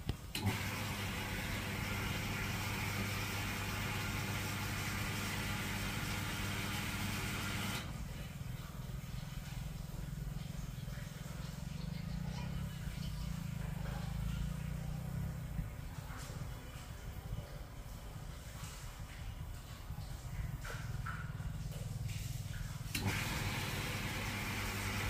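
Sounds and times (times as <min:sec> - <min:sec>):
machine humming: 0:00.3 - 0:15.7, 0:21.0 - 0:25.0.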